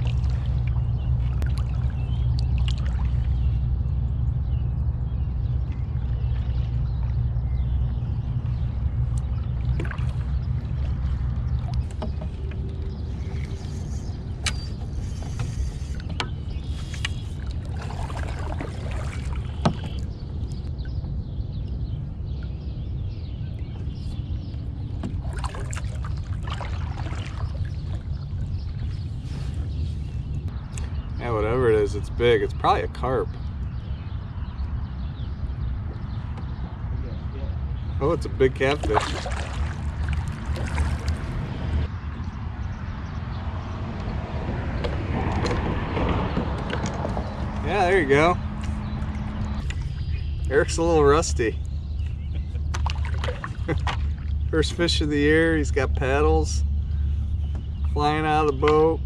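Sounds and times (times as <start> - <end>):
paddle blades dipping in water: 0.0 - 3.7, 5.6 - 20.7, 24.9 - 30.4, 38.6 - 41.9, 44.8 - 47.8, 48.4 - 54.8
steady low rumble: 0.0 - 59.0.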